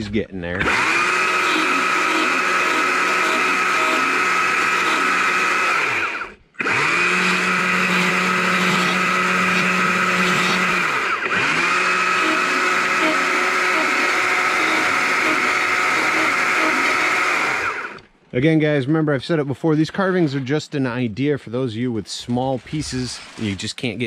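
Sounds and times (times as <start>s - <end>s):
chainsaw carving wood: 0.5s - 18.1s.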